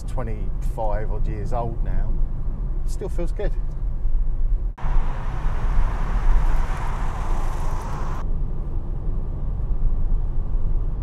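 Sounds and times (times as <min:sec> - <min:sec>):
car engine and road rumble: 0:00.0 - 0:11.0
tyre and wind hiss: 0:04.8 - 0:08.2.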